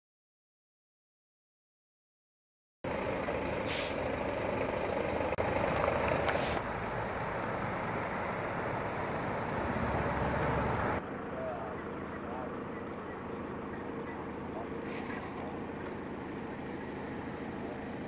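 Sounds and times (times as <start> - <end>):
truck engine running: 2.8 - 18.0
air brake hiss: 3.6 - 4.0, 6.3 - 6.6.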